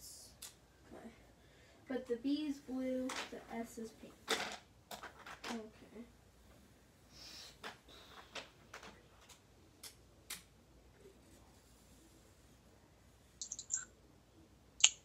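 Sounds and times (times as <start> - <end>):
marker taps and clicks: 13.4 - 13.9, 14.8 - 15.0.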